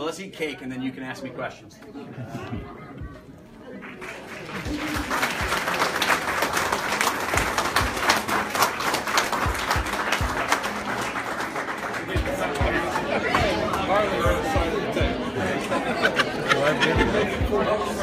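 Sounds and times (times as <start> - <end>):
people applauding: 3.6 - 14.7.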